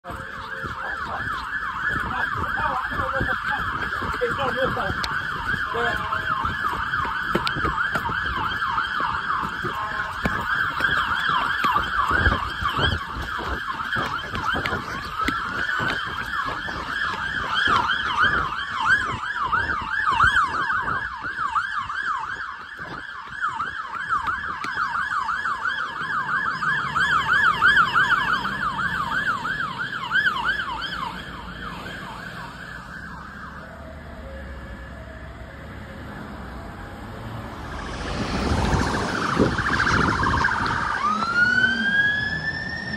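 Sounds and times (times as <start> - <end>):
fire engine sirens yelping: 0.0 - 42.9
slow wailing siren: 0.0 - 42.9.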